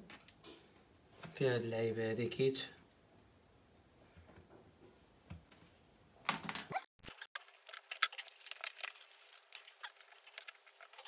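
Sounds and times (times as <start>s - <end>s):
packaging rustling: 6.4s - 11.0s.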